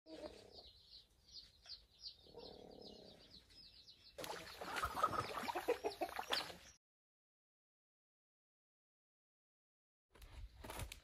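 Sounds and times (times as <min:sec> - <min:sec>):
hen clucking: 0:04.2 - 0:06.8.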